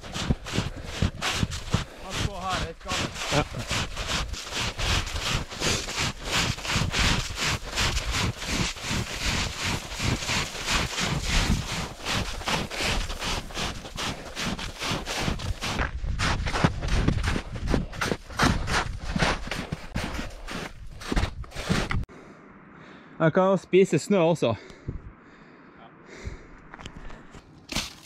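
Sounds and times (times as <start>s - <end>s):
footsteps jogging in snow: 0.0s - 22.1s.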